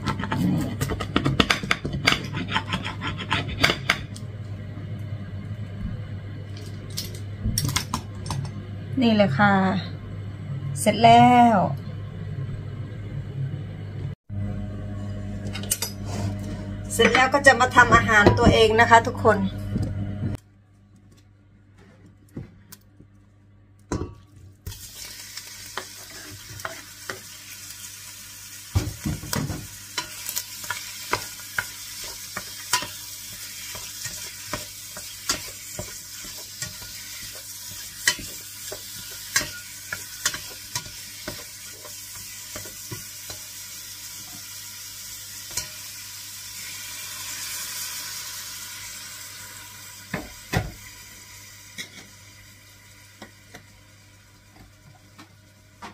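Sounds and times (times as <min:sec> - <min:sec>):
metal spoon scraping pot: 0:00.0 - 0:04.0
meat sizzling in a pot: 0:24.6 - 0:55.0.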